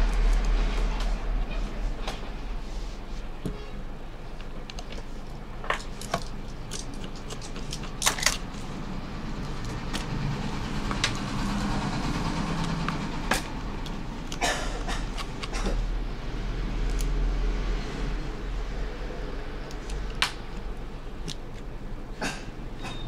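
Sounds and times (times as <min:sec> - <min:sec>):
low hum: 0:00.0 - 0:04.3.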